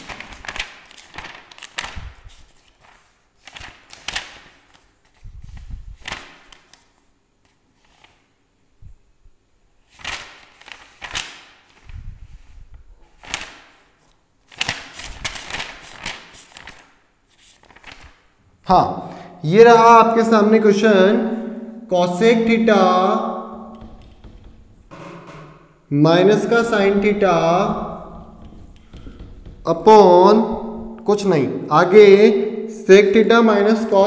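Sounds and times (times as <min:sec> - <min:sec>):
book pages flipping and rustling: 0:00.0 - 0:08.3, 0:09.9 - 0:18.3.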